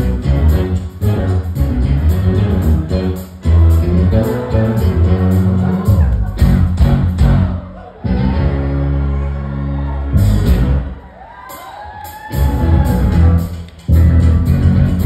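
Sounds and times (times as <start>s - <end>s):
funk band held chord: 0.0s - 11.1s, 12.3s - 15.0s
audience whoops and cheers: 7.4s - 13.6s.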